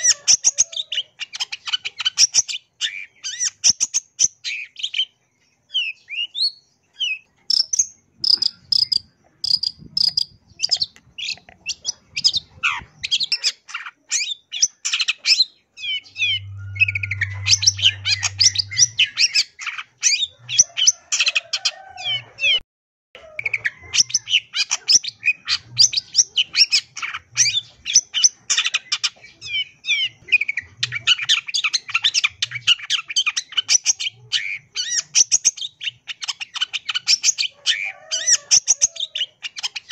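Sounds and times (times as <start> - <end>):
shrike singing chattering song: 7.0 - 21.5.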